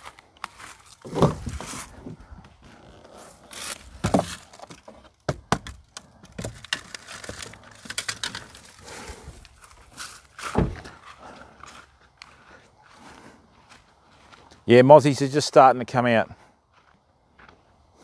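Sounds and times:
heavy thud: 10.4s - 11.0s.

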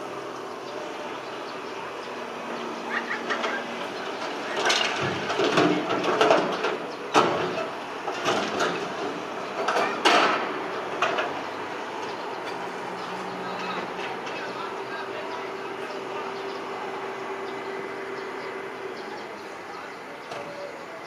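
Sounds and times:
excavator diesel engine running: 0.0s - 21.0s
soil and rubble clattering into truck: 3.2s - 11.4s.

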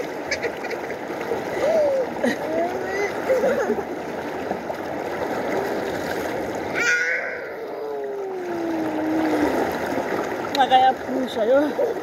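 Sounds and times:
river water rushing: 0.0s - 12.0s
brief high call: 6.7s - 7.6s
long low falling call: 6.7s - 9.1s.

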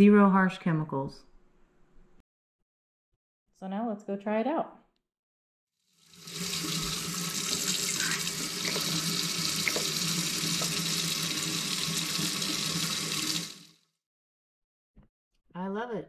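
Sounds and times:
faucet running into steel sink: 6.0s - 13.8s.

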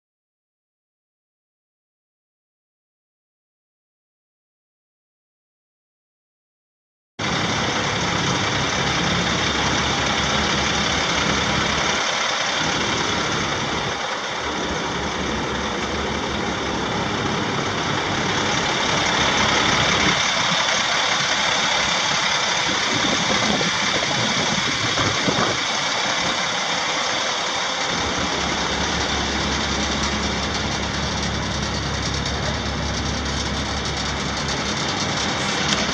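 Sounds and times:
diesel truck engine running: 7.2s - 35.9s.

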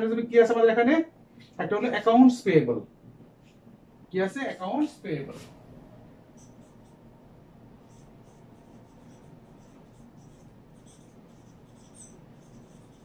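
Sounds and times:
marker squeaking on whiteboard: 6.3s - 7.1s, 7.7s - 13.0s.

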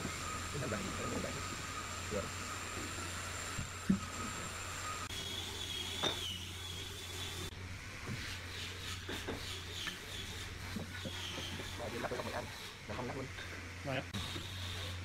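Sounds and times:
faint high wavering whine: 0.0s - 8.2s
low workshop hum: 0.0s - 15.0s.

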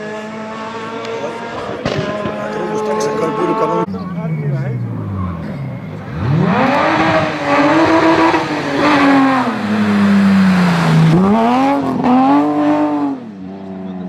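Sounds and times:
car engine revving hard: 0.0s - 3.9s, 4.9s - 14.0s.

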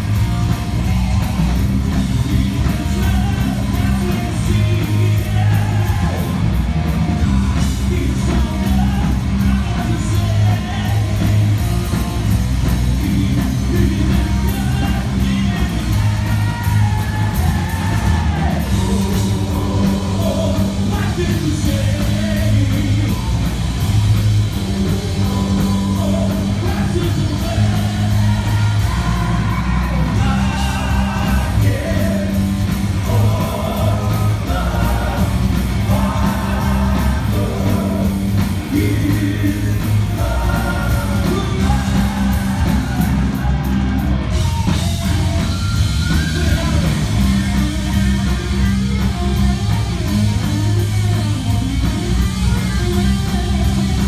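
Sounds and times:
man singing lead vocals: 0.0s - 6.4s, 7.2s - 23.7s, 24.7s - 44.9s
live heavy metal band: 0.0s - 54.0s.

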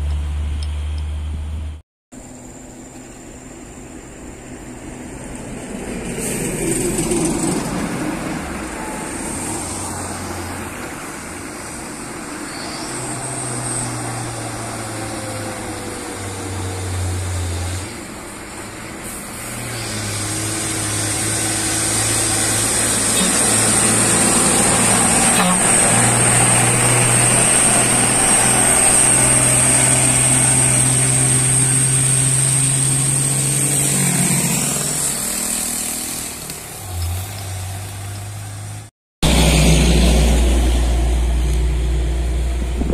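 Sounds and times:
truck diesel engine droning: 0.0s - 42.9s
high-pitched whine: 8.4s - 18.3s.

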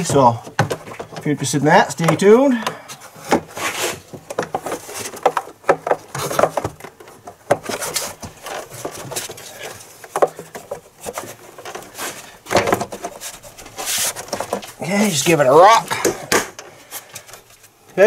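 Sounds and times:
plastic knocking and tapping: 0.0s - 1.3s, 4.1s - 9.0s
plastic scraping against metal: 0.0s - 17.7s.

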